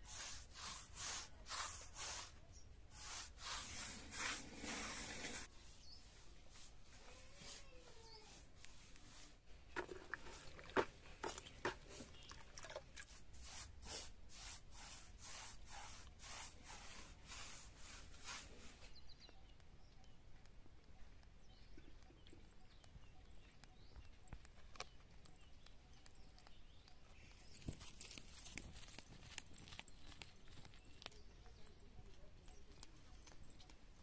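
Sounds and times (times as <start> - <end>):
paintbrush swishing on wall: 0.0 - 12.2, 13.0 - 19.0.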